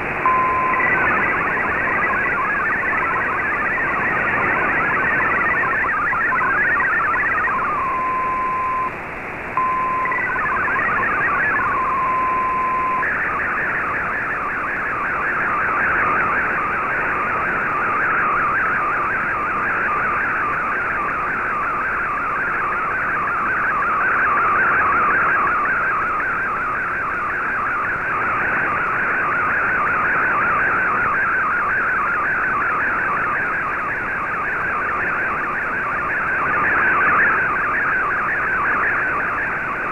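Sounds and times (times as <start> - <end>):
steady high tone: 0.2 - 8.9, 9.6 - 13.1
warbling digital data tones: 0.2 - 8.9, 9.6 - 13.5.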